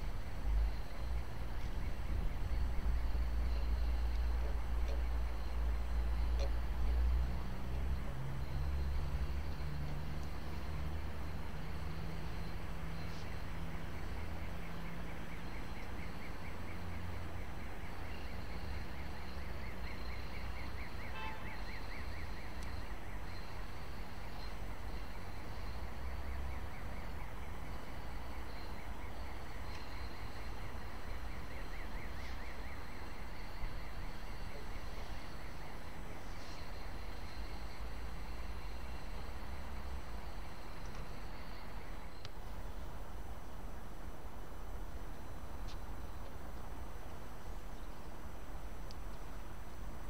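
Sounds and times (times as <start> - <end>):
bird chirping: 0.4 - 6.9.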